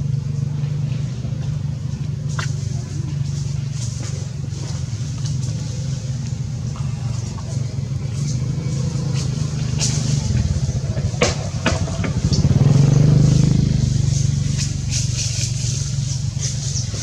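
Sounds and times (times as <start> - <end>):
motor engine humming: 0.0 - 17.0.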